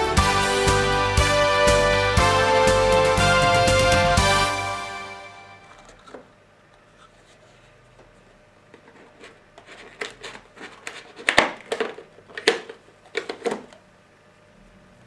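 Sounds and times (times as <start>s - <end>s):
cardboard and plastic rustling: 5.6s - 6.3s, 6.9s - 13.8s.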